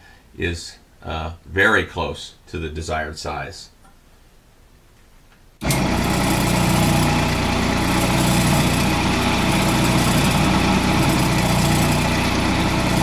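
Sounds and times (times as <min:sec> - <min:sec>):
chisel shaving wood: 0:05.6 - 0:13.0
wood lathe motor hum: 0:05.6 - 0:13.0.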